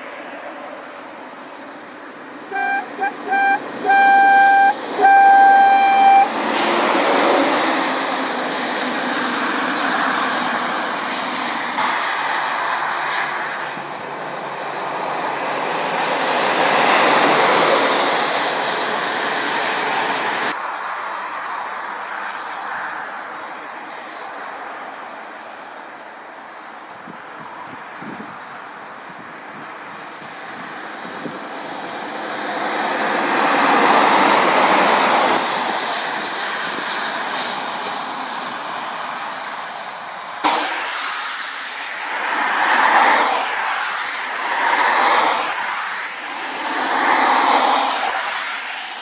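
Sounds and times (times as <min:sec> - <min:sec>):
passing traffic engine and tyres: 0:00.0 - 0:49.0
lorry horn toots and blasts: 0:02.5 - 0:06.8.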